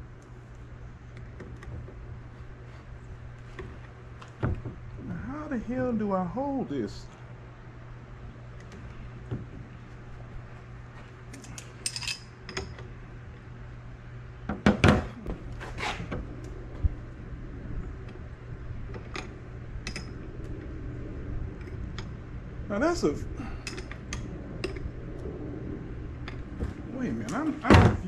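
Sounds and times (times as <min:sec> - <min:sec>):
steady low hum: 0:00.0 - 0:28.0
hand tools clinking on metal: 0:11.4 - 0:12.7.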